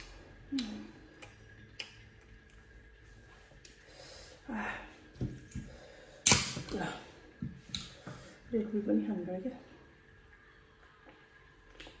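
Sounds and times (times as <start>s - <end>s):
noisy breath: 3.8s - 6.3s.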